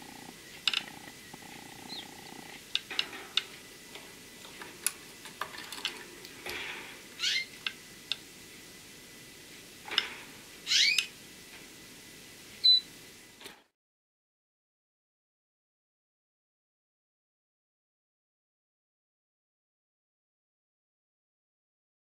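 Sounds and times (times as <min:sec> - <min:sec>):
canaries chirping: 0:01.3 - 0:02.5, 0:07.2 - 0:07.5, 0:10.7 - 0:11.1, 0:12.6 - 0:12.9.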